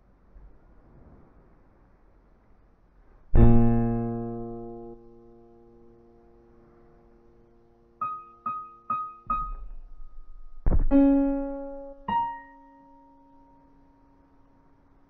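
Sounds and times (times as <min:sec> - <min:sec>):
piano notes and chords: 0:03.3 - 0:15.0.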